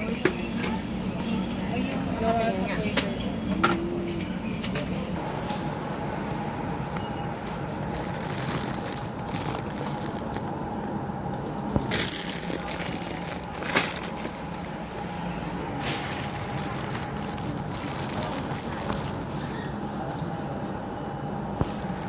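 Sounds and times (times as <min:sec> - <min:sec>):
supermarket background hum: 0:00.0 - 0:22.0
plastic packaging crinkling: 0:07.8 - 0:10.5, 0:11.8 - 0:14.7, 0:16.0 - 0:19.7.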